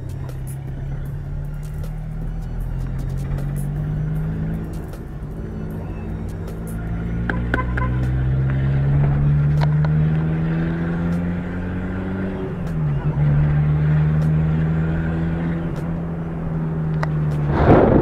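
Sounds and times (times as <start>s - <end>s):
car engine pulling: 0.0s - 18.0s.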